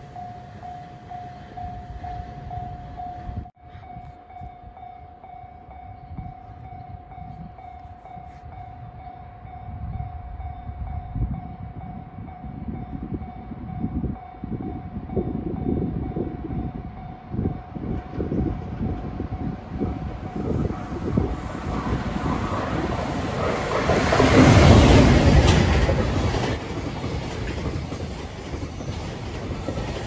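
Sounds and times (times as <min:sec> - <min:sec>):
train rumble: 0:00.0 - 0:30.0.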